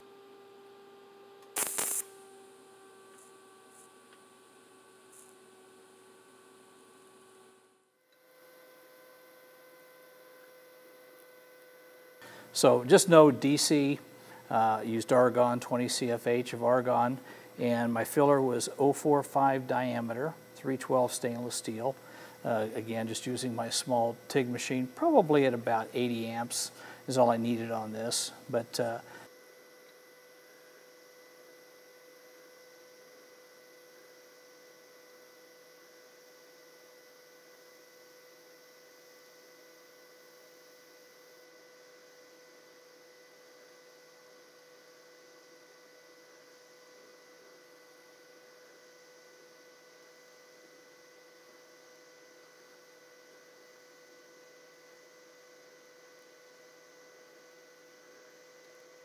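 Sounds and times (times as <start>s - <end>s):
faint electrical hum: 0.0s - 59.0s
welding arc humming: 0.6s - 8.6s, 9.2s - 29.3s
light hiss: 1.4s - 2.2s.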